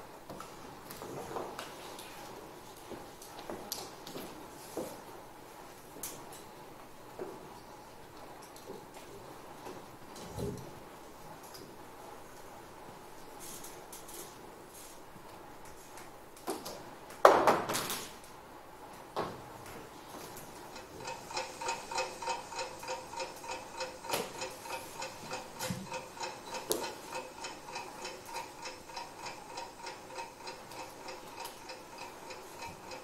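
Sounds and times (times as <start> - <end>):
clock ticking: 20.7 - 33.0.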